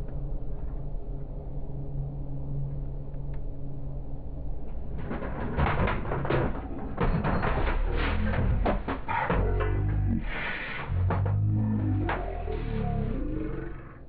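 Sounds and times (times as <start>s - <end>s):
train wheels clattering over rails: 5.0s - 12.3s
low engine drone: 7.9s - 14.0s.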